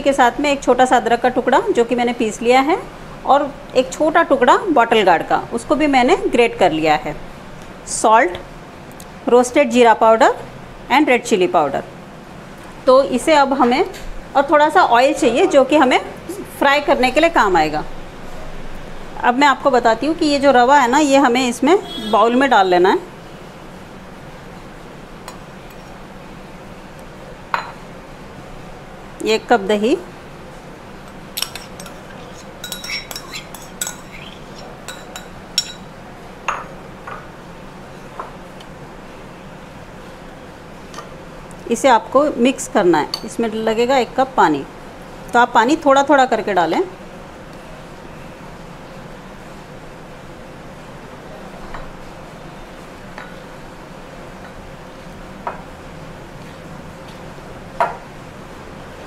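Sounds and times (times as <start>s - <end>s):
steady background hum: 0.0s - 59.0s
spoon clinking on ceramic bowl: 31.4s - 35.9s.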